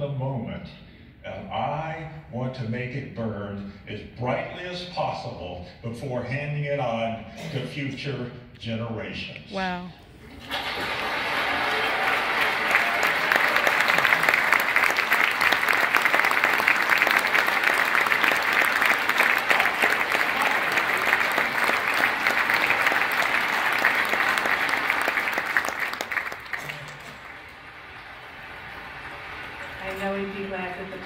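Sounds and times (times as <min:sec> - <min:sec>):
audience applause: 0:10.2 - 0:31.0.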